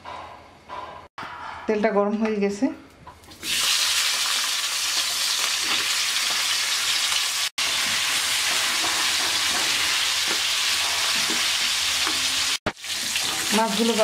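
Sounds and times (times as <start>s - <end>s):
fish frying in hot oil: 3.3s - 14.0s.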